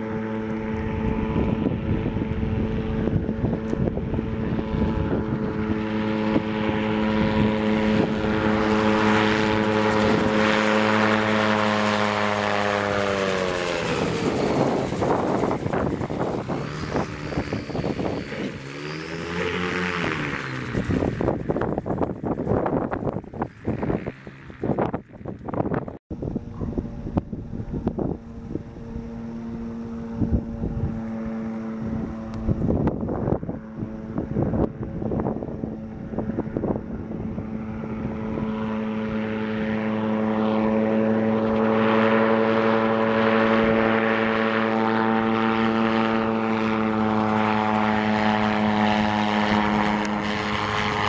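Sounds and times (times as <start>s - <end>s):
gyroplane engine drone: 0.0s - 51.0s
wind buffeting microphone: 0.0s - 51.0s.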